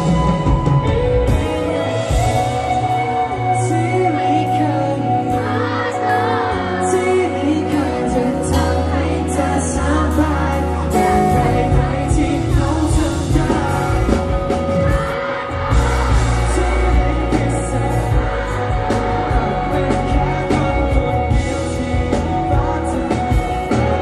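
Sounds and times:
drums with cymbal hits: 0.0 - 3.6, 8.4 - 24.0
bass guitar: 0.0 - 24.0
electric guitar: 0.0 - 24.0
man singing: 1.3 - 24.0.

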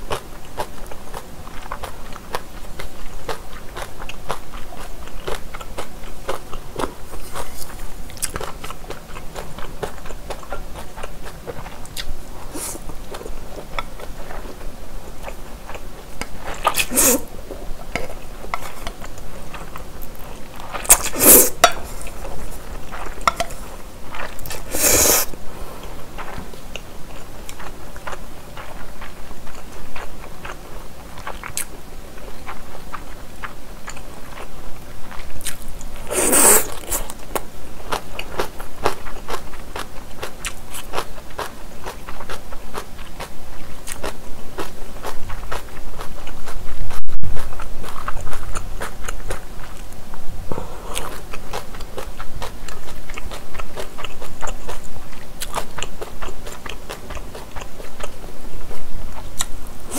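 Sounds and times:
wet chewing: 0.1 - 25.4, 50.9 - 59.9
noodle slurps: 16.7 - 17.3, 20.9 - 22.0, 24.5 - 25.3, 36.0 - 37.1.

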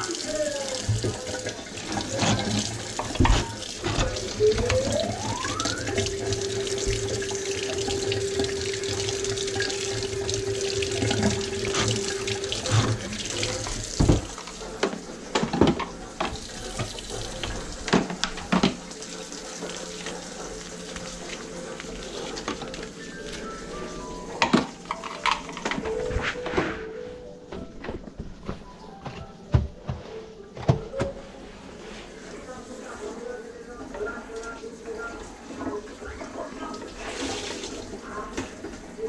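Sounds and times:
faucet running into sink: 0.0 - 25.8.

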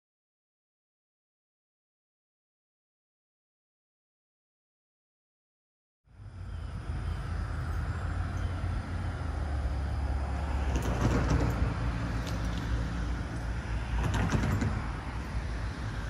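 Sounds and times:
traffic engine rumble: 6.1 - 16.0.

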